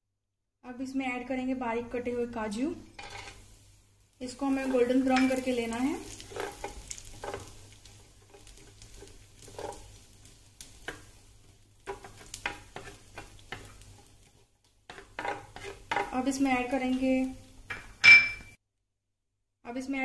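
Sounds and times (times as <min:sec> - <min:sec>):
faint oil sizzle: 0:01.1 - 0:18.0
wooden spatula scraping a pan: 0:03.0 - 0:17.9.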